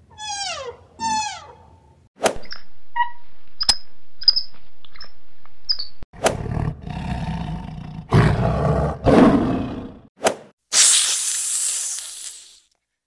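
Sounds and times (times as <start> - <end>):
high squeaky monkey calls: 0.1 - 1.7
lion growling and roaring: 6.2 - 10.1.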